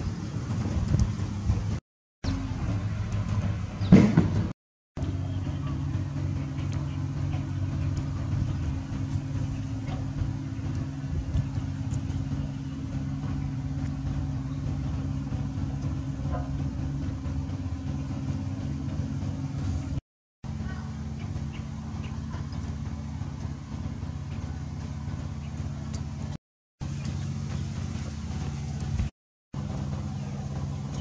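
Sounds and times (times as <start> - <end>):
engine humming: 0.0 - 31.0.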